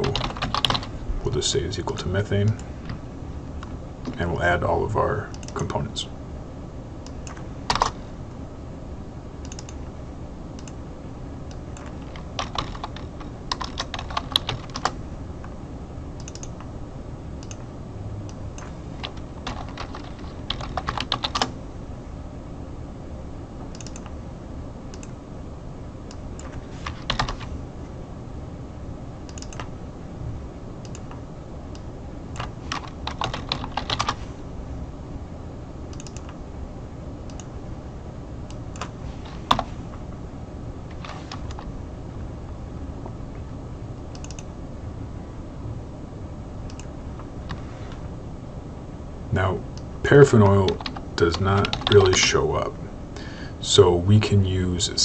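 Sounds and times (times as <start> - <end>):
computer keyboard typing: 0.0 - 0.9, 7.1 - 8.0, 9.4 - 9.8, 11.5 - 15.0, 16.2 - 16.7, 18.5 - 21.6, 23.7 - 24.2, 26.1 - 27.5, 29.3 - 29.7, 32.3 - 34.2, 35.9 - 36.4, 44.1 - 44.5, 50.3 - 52.4
steady low hum: 0.0 - 55.0.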